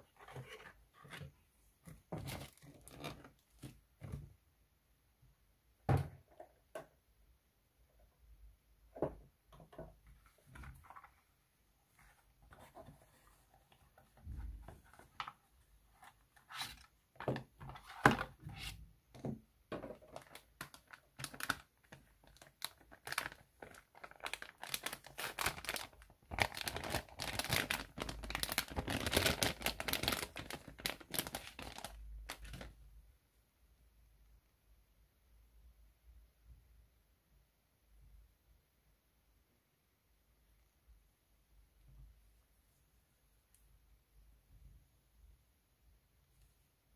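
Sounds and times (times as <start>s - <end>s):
plastic bag crinkling: 20.0s - 32.7s.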